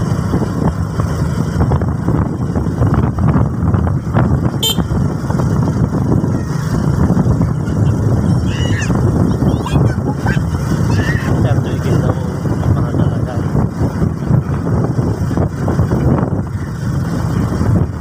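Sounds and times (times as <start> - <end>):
vehicle engine and road noise: 0.0 - 18.0.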